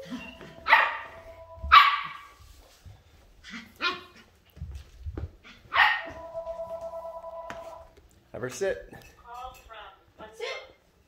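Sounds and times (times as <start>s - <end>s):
puppy barking: 0.6s - 2.3s, 5.7s - 6.2s.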